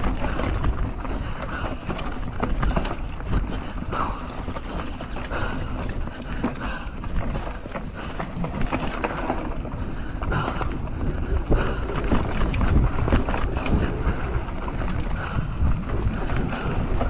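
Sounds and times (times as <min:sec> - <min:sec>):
bike knocks and rattles: 0:00.0 - 0:17.0
tyres rumbling over dirt: 0:00.0 - 0:17.0
wind rushing over microphone: 0:09.4 - 0:17.0.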